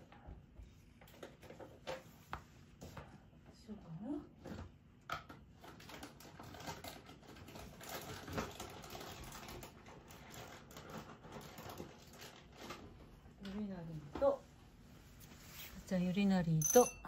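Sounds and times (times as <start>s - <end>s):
rustling of handled things: 5.6s - 17.0s.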